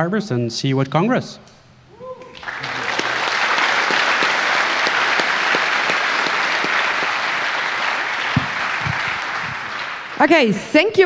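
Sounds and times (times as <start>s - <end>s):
large audience applauding: 2.2s - 10.7s
low thumps: 8.2s - 9.7s.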